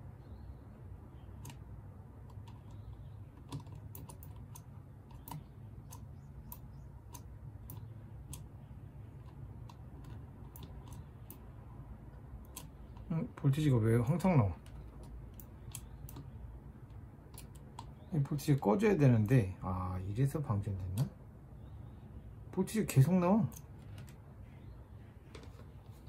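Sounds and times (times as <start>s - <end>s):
low steady hum: 0.0s - 26.0s
small clicks and taps of probes: 1.3s - 11.5s, 14.2s - 18.1s.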